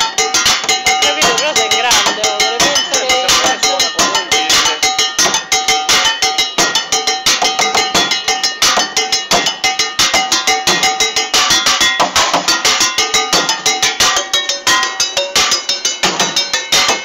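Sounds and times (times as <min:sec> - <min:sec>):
sticks drumming on metal pots: 0:00.0 - 0:17.0.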